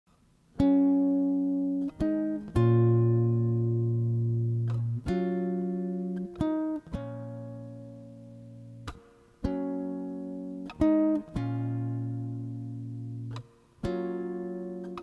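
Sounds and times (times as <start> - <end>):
guitar chords ringing: 0.5 - 15.0.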